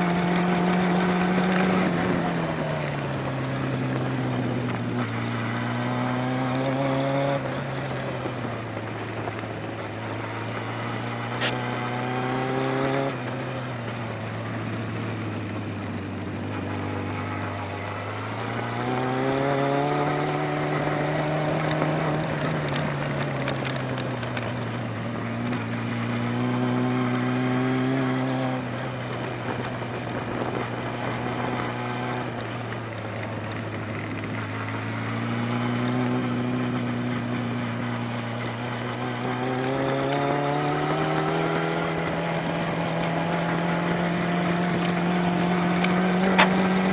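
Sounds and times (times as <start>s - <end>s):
motorcycle engine revving: 0.0s - 46.9s
sharp click: 46.2s - 46.7s.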